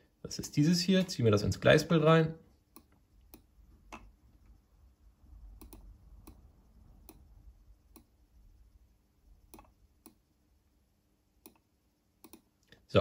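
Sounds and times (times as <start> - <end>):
faint control unit clicks: 5.6 - 6.4, 7.0 - 7.3, 11.4 - 12.8.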